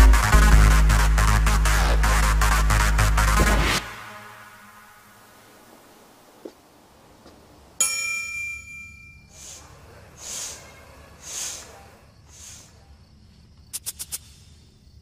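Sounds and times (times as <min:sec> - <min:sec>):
quick clicks: 0:13.6 - 0:14.4.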